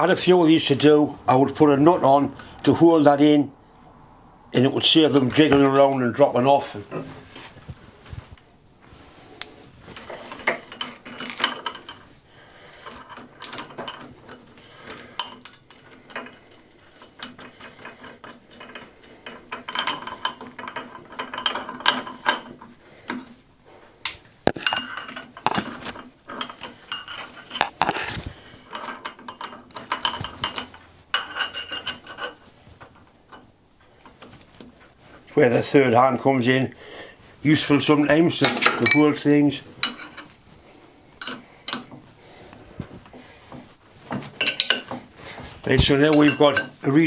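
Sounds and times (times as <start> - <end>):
metal parts clinking: 9.9 - 23.3, 24.0 - 33.5, 38.0 - 40.4, 41.2 - 42.0, 44.3 - 45.0, 45.6 - 47.0.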